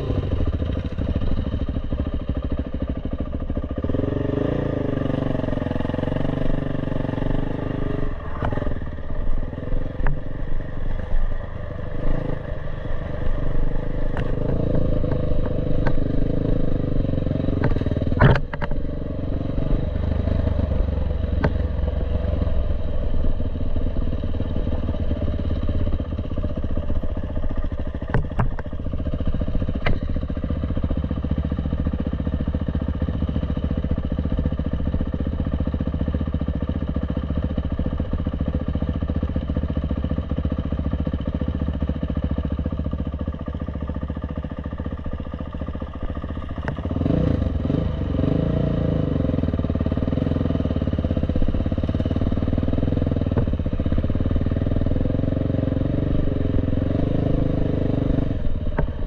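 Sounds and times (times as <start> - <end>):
dirt bike engine: 0.0 - 59.0
sharp knocks and clatter: 17.6 - 18.8, 28.0 - 28.8.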